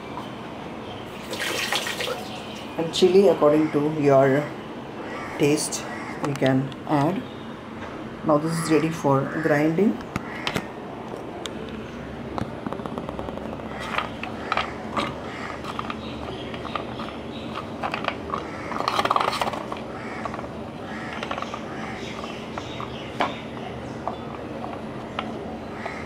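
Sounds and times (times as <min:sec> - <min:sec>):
scraping and clatter: 0:13.0 - 0:21.6.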